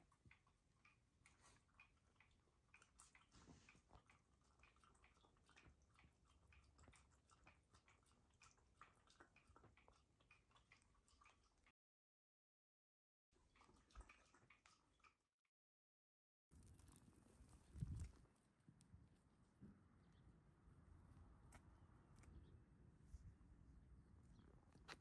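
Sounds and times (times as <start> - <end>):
dog lapping water: 0.0 - 11.7, 13.4 - 15.3.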